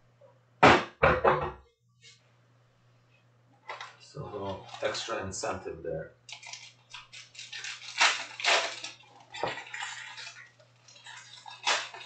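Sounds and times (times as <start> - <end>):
plastic wrap crinkling: 3.7 - 5.2, 6.3 - 12.0.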